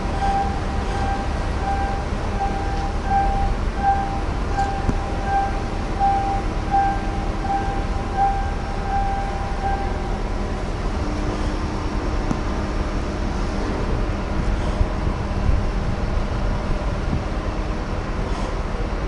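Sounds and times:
steady low rumble: 0.0 - 19.0
electronic warning beeper: 0.2 - 10.1.

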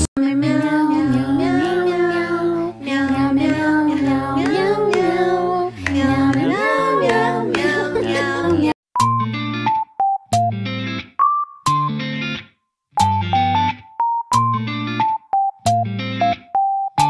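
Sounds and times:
high singing voice: 0.2 - 8.8.

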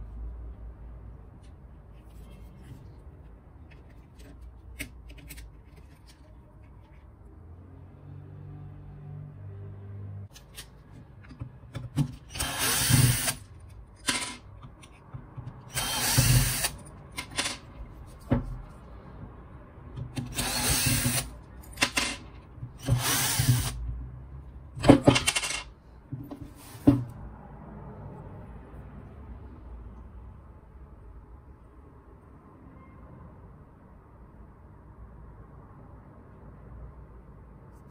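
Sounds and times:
powered screwdriver running: 12.3 - 13.4, 15.7 - 16.8, 20.2 - 21.3, 22.8 - 23.8
metal parts clacking: 14.0 - 15.1, 24.8 - 25.7.

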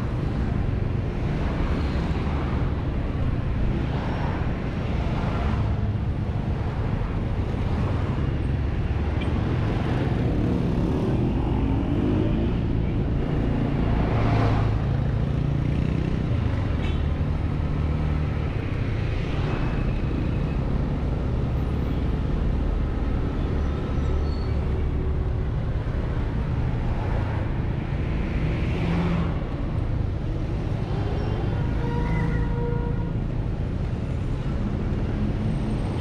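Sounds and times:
passing vehicles: 0.0 - 36.0
scooter engine and road noise: 0.0 - 36.0.

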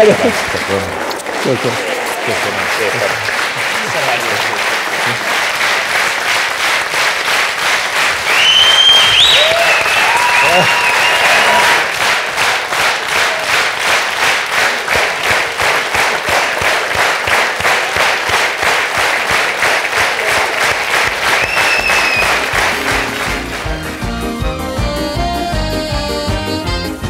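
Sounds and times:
audience clapping in rhythm: 0.0 - 27.0
high whistle-like tone: 21.4 - 22.4
music: 21.8 - 27.0.

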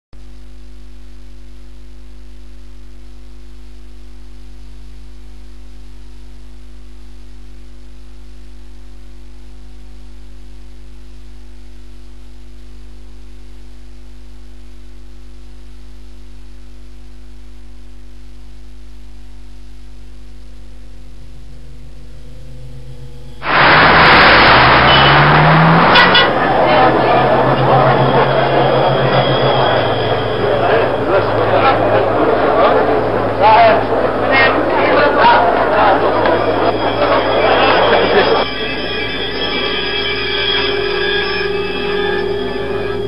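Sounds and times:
hiss: 23.4 - 26.3.

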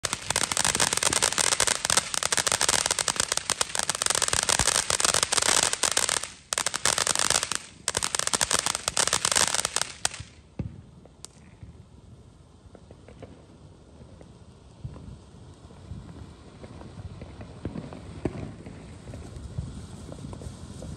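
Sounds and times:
firework crackling: 0.0 - 20.9.

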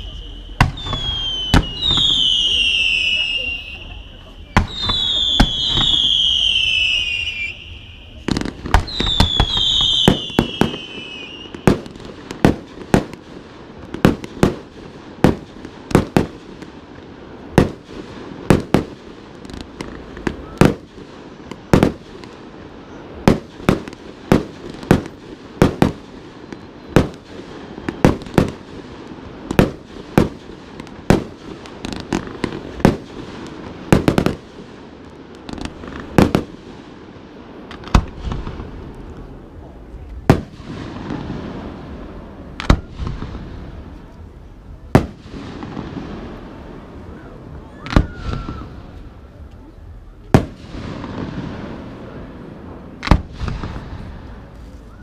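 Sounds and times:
falling firework whistles: 0.0 - 12.6, 40.2 - 43.4, 47.0 - 49.2, 53.0 - 55.0
fireworks bursting with bangs: 0.0 - 55.0
fireworks crackling: 0.0 - 55.0.

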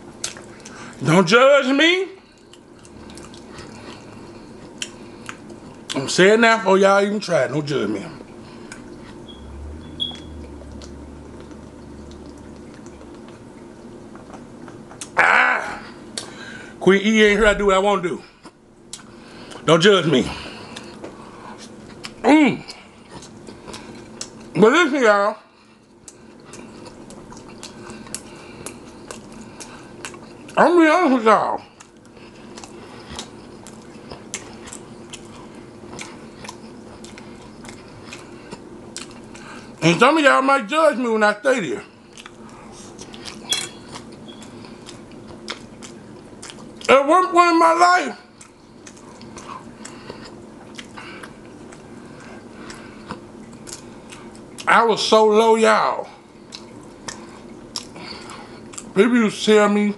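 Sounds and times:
close chewing with mouth smacks: 0.0 - 1.0, 2.2 - 6.1, 8.2 - 15.2, 18.4 - 19.7, 20.4 - 24.6, 25.5 - 30.6, 31.6 - 39.8, 41.8 - 46.9, 48.3 - 54.7, 56.3 - 59.0
brief squeak: 9.2 - 10.4.

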